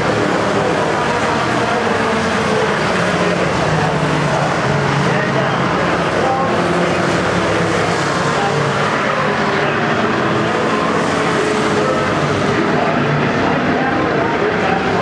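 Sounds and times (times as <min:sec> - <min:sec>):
race truck engines passing: 0:00.0 - 0:15.0.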